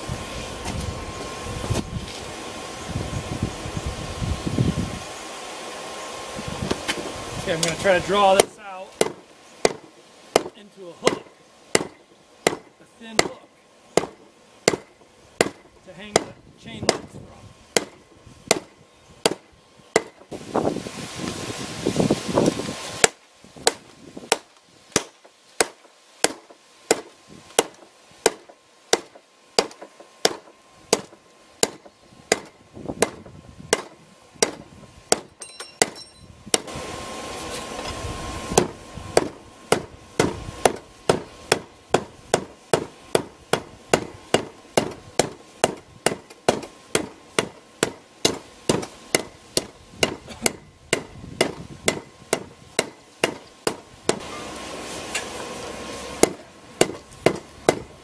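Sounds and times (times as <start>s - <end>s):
hammer striking steel on anvil: 8.4s - 13.4s, 14.0s - 17.1s, 23.0s - 36.7s, 38.6s - 54.4s, 56.2s - 57.9s.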